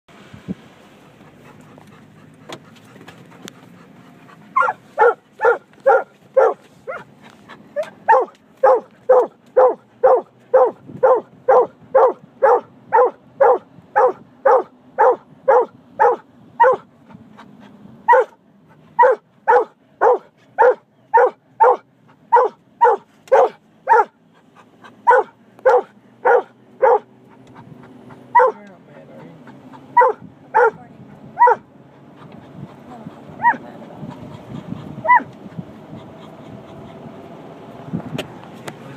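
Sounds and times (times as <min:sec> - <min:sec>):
dog barking: 0:04.6 - 0:07.1, 0:07.8 - 0:16.9, 0:18.1 - 0:18.4, 0:19.0 - 0:24.2, 0:25.0 - 0:27.1, 0:28.3 - 0:28.6, 0:29.9 - 0:30.8, 0:31.4 - 0:31.7, 0:33.4 - 0:33.6, 0:35.0 - 0:35.3.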